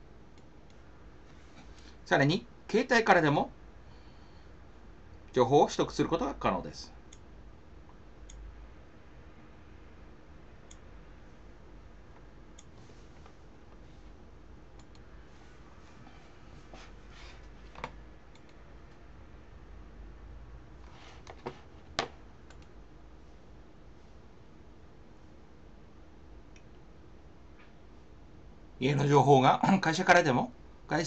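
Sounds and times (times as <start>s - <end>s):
low steady hum: 0.0s - 31.0s
computer mouse clicks: 14.8s - 15.0s, 17.7s - 18.6s, 22.4s - 22.7s.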